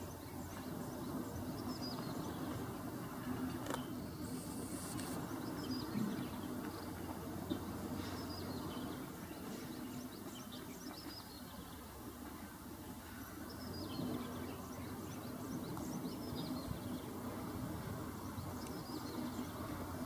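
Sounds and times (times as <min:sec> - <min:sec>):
birds chirping: 0:00.0 - 0:06.9.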